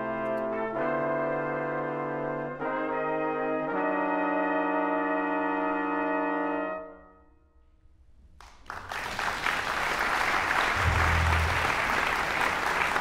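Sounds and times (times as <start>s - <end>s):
audience applause: 8.4s - 13.0s
big band brass chord: 10.8s - 13.0s.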